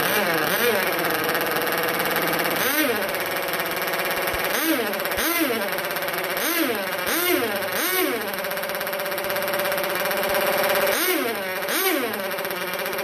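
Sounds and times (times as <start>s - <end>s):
buzzy two-stroke engine revving: 0.0s - 13.0s.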